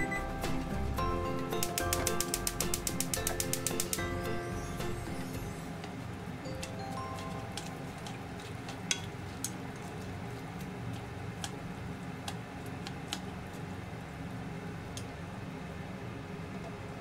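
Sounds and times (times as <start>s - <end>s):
chopsticks clicking against a pot: 1.6s - 4.0s, 11.4s - 11.6s, 12.2s - 13.3s.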